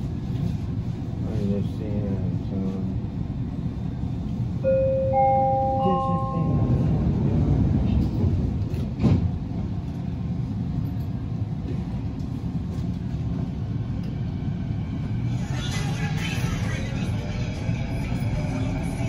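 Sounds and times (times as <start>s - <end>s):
train humming at platform: 0.0s - 19.0s
rising three-tone door chime: 4.7s - 6.8s.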